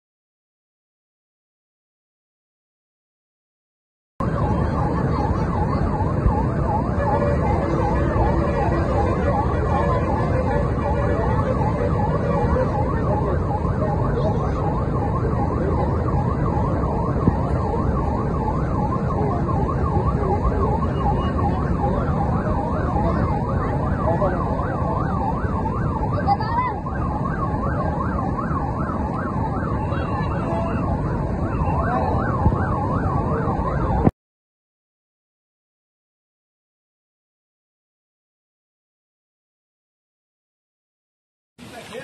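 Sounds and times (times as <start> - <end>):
wailing siren tone: 4.2 - 34.1.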